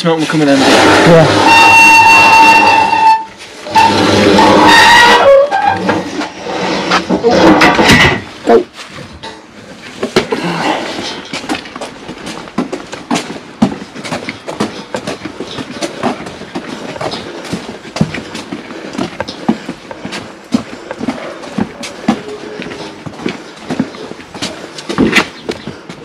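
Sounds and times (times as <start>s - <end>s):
footsteps on paving slabs: 8.2s - 26.0s.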